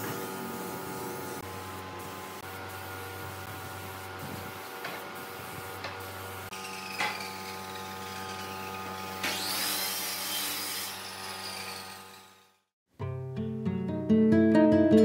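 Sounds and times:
spray gun hissing: 0.5s - 8.6s.

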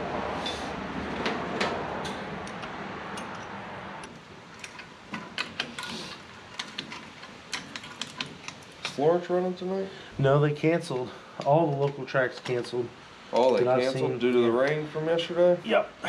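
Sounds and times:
hand tools clicking on metal: 2.0s - 9.0s.

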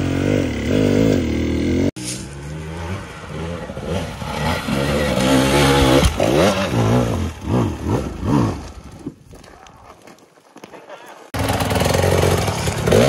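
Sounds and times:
dirt bike engine revving: 0.0s - 9.0s, 11.4s - 13.0s.

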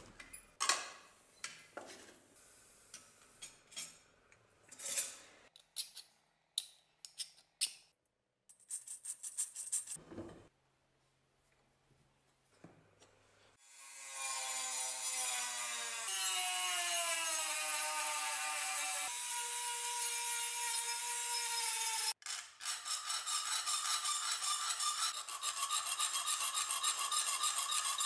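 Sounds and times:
file scraping a blade: 4.9s - 7.8s, 18.7s - 28.0s
rotary tool grinding steel: 13.9s - 28.0s.

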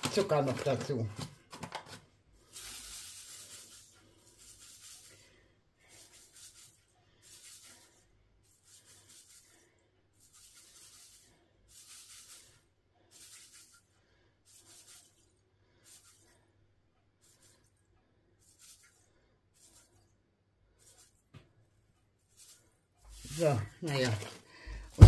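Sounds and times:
sugar trickling into metal bowl: 2.4s - 16.4s, 22.3s - 24.4s.

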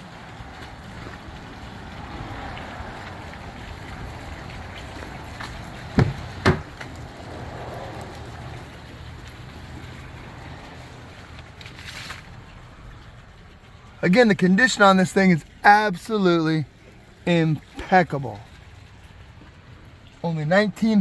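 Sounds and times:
truck door clunks: 5.9s - 6.9s.

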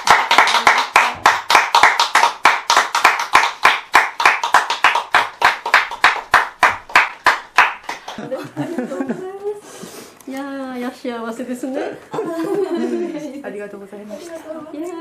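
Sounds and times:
small audience clapping: 0.0s - 8.9s.

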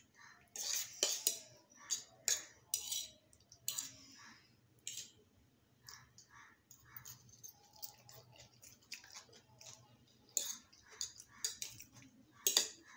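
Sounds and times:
soft chewing: 0.0s - 12.9s
forks clicking on plates: 0.6s - 4.0s, 4.8s - 5.2s, 6.7s - 12.9s.

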